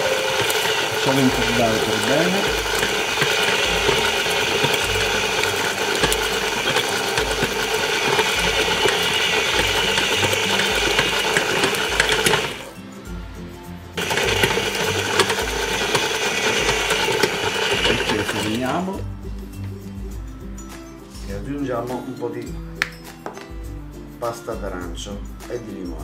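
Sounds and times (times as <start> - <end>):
stand mixer motor whine: 0.0 - 12.8, 14.0 - 19.0.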